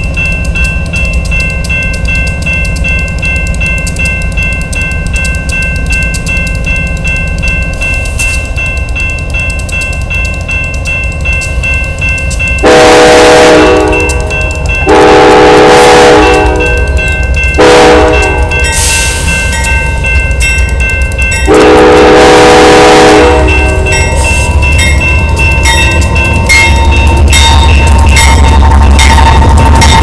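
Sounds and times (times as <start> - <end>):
locomotive air horn blasts: 12.6 - 14.1, 14.9 - 16.7, 17.6 - 18.5, 21.5 - 23.7.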